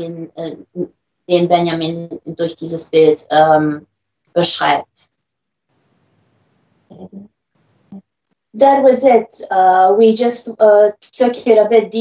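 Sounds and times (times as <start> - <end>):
faint steady hiss: 3.3 - 10.0
short vocal sound: 6.9 - 7.2.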